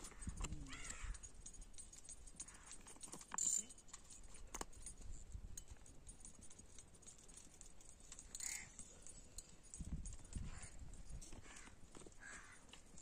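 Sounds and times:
wind rumbling on microphone: 0.0 - 1.3, 9.7 - 11.6
crow cawing: 0.1 - 1.2, 8.4 - 8.7, 11.4 - 12.6.

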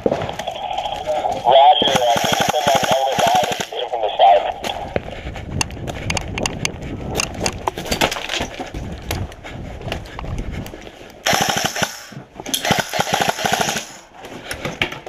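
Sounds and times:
full-auto airsoft rifle bursts: 1.8 - 3.7, 11.2 - 14.0.

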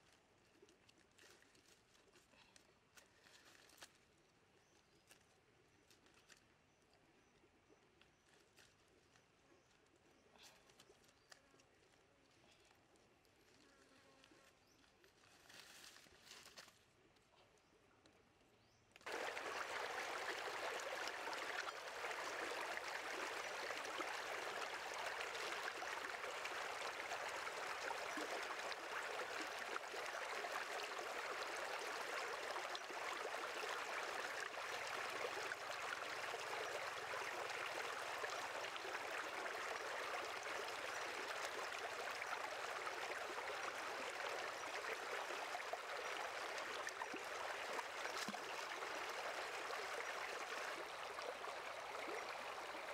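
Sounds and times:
stream water running over rocks: 19.0 - 52.9.

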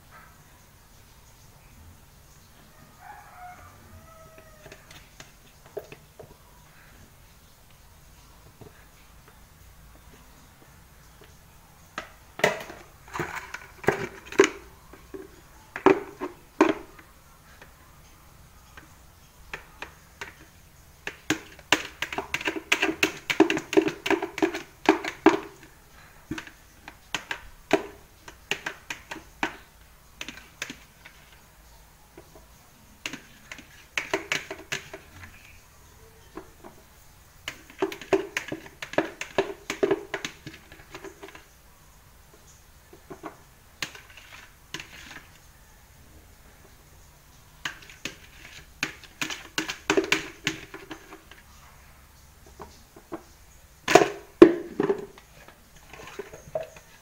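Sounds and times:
plastic pitcher clicking and tapping: 4.6 - 6.4, 11.9 - 17.8, 18.6 - 31.4, 32.1 - 35.6, 36.3 - 41.5, 42.9 - 45.3, 47.6 - 51.5, 52.4 - 57.0.

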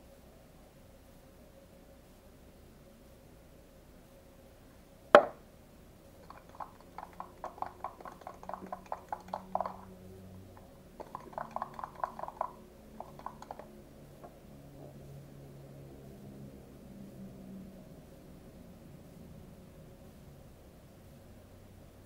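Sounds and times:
sharp knock: 5.2 - 5.4
spoon clicking against cup: 6.2 - 9.9, 11.0 - 13.7.

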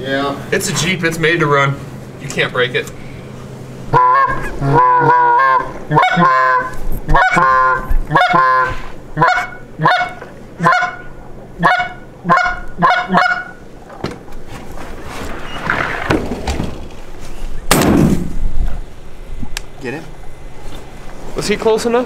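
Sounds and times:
goose honking: 3.9 - 13.7.

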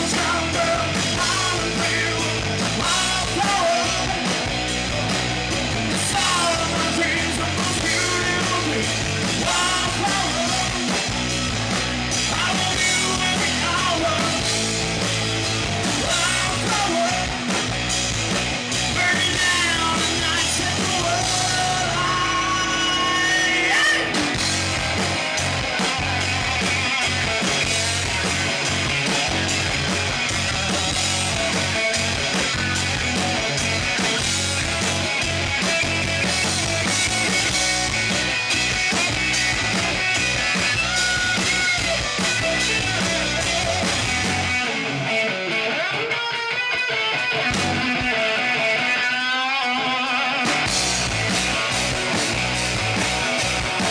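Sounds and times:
man singing: 0.0 - 4.5, 5.8 - 11.1, 12.2 - 14.6, 16.0 - 17.6, 18.8 - 24.4, 40.8 - 44.7, 47.8 - 50.5
bass guitar: 0.0 - 53.9
drums: 0.0 - 53.9
electric guitars: 0.0 - 53.9.

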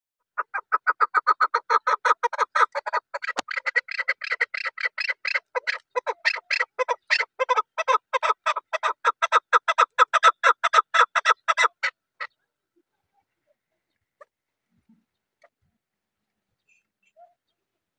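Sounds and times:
partridge calling: 0.4 - 12.4.

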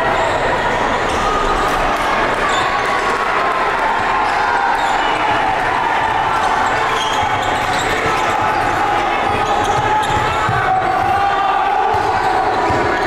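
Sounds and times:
crowd voices humming: 0.0 - 13.0
sneaker squeaks: 4.2 - 5.2, 6.6 - 10.7.

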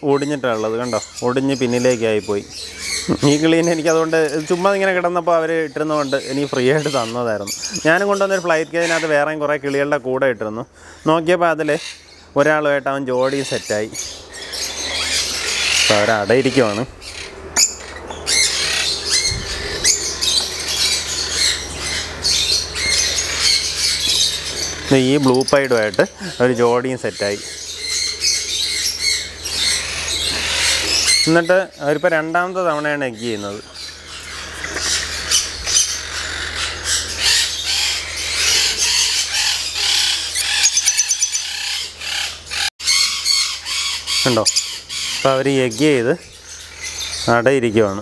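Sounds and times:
lovebirds squawking and chirping: 0.0 - 48.0.

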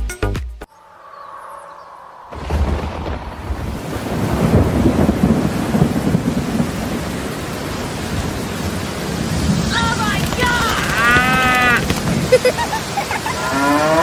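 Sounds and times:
rumbling thunder: 1.8 - 12.4
steady rain: 2.3 - 14.0.

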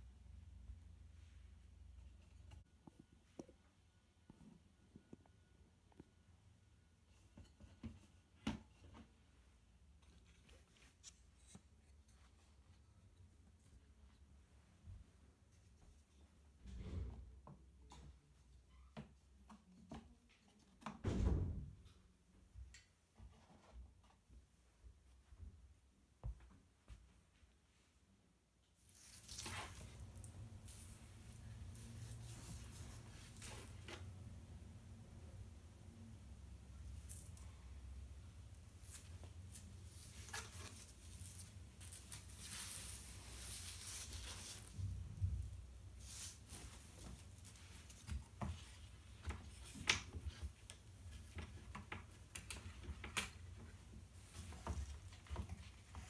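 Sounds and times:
cloth rustling: 28.8 - 34.2, 38.6 - 51.4
canvas bag rustling: 28.9 - 33.8.

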